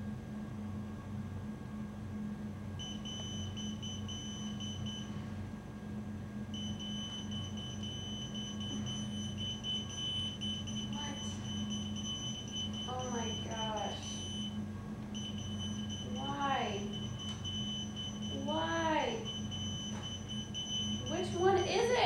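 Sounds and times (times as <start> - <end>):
steady low hum: 0.0 - 22.0
pager beeps: 2.8 - 5.1, 6.6 - 14.6, 15.2 - 16.2, 16.8 - 18.5, 19.2 - 21.8.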